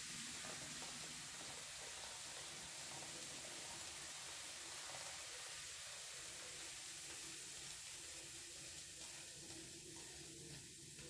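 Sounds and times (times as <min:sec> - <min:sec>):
faint fizzing foam: 0:00.0 - 0:11.0.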